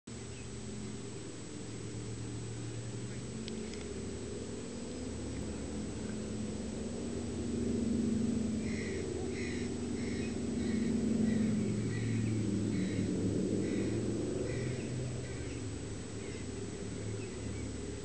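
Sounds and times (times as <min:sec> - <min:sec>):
propeller aircraft engine drone: 0:00.1 - 0:18.0.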